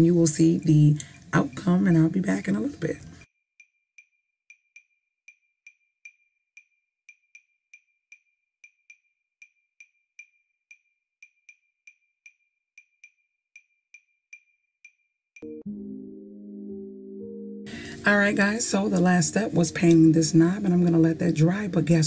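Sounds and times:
clock ticking: 0.0s - 3.0s
music: 15.4s - 22.0s.

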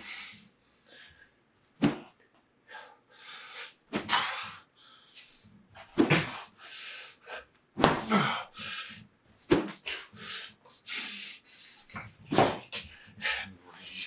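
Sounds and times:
man huffing and gasping: 4.0s - 4.6s, 7.3s - 9.0s.

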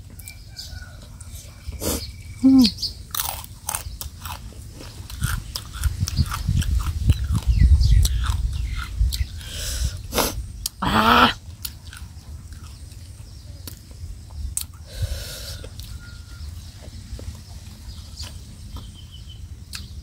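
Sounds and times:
person chewing crunchy food: 3.0s - 19.0s, 19.6s - 20.0s
loud wavering cry: 10.8s - 11.4s.

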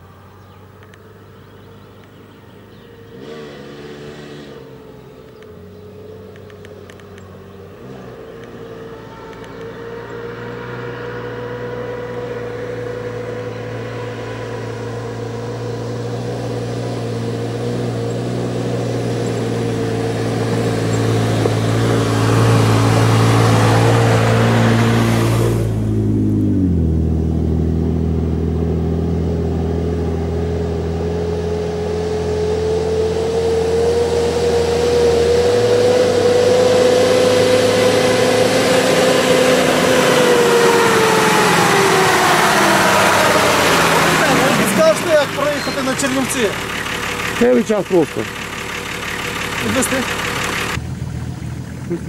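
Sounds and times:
car engine pulling uphill: 0.0s - 52.0s
tyres on gravel: 42.6s - 52.0s.

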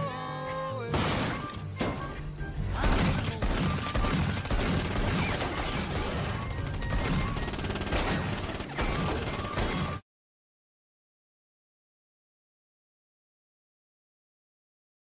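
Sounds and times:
film score music: 0.0s - 10.0s.

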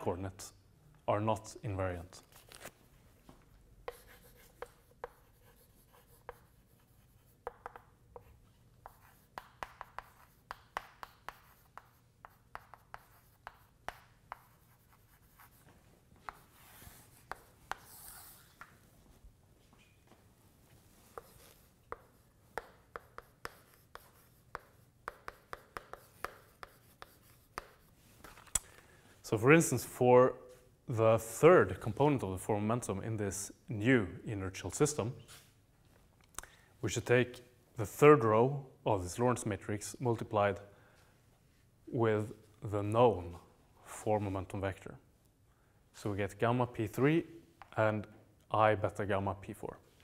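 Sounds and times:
chalk scratching on blackboard: 3.8s - 18.7s, 21.0s - 28.0s
chalk tapping on blackboard: 3.8s - 18.7s, 21.1s - 28.4s.

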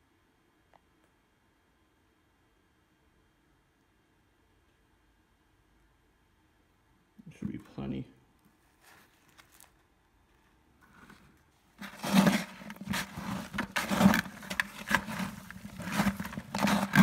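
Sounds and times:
cement crunching and scraping: 10.8s - 17.0s.

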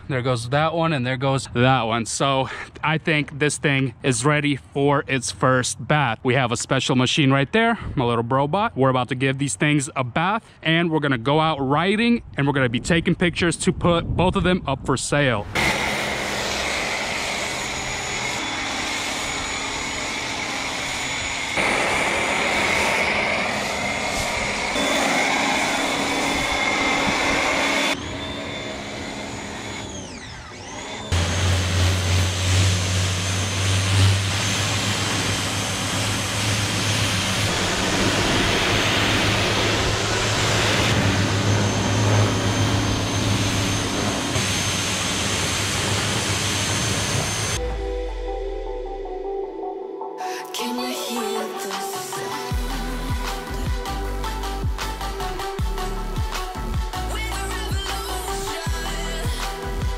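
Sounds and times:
pressure washer whining: 15.4s - 48.2s, 51.3s - 59.9s
water jet spraying: 15.6s - 28.0s.

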